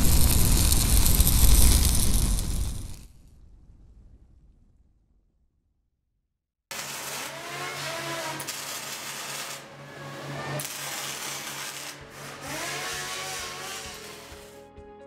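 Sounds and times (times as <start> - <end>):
welding: 0.0 - 3.2, 6.7 - 14.6
power tools grinding: 6.7 - 14.6.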